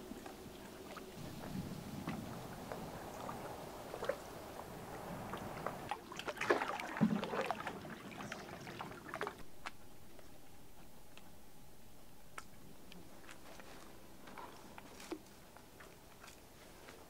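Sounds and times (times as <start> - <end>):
water splashing around canoe: 0.0 - 9.8
small splashes and clicks: 0.1 - 10.3.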